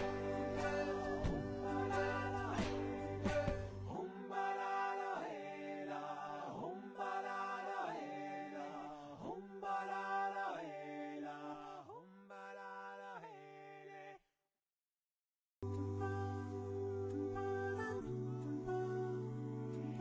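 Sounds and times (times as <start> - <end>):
a cappella singing: 0.0 - 14.2, 15.6 - 20.0.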